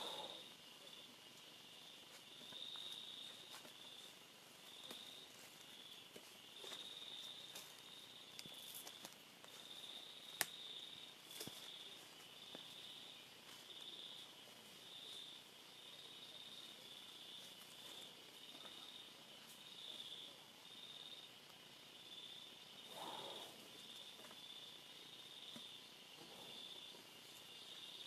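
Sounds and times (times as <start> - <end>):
insect chorus pulsing: 0.0 - 28.0.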